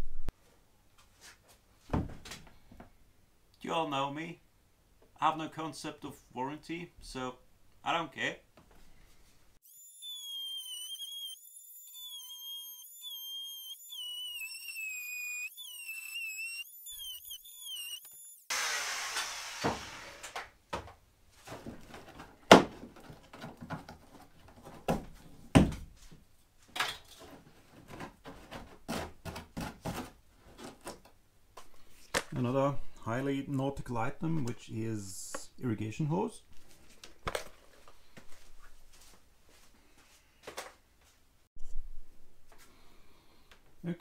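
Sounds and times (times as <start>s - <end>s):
wavering whistle-like tune: 9.6s - 18.5s.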